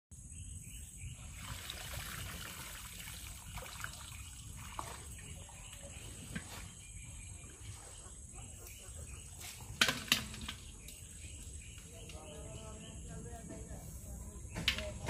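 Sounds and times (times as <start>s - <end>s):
small water splashes: 1.3s - 5.8s
water trickling and dripping: 1.4s - 5.9s.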